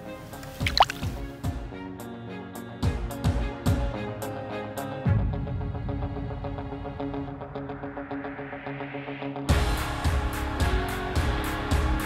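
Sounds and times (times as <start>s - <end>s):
background music with drum beat: 0.5s - 1.9s, 2.8s - 4.2s, 9.5s - 12.0s.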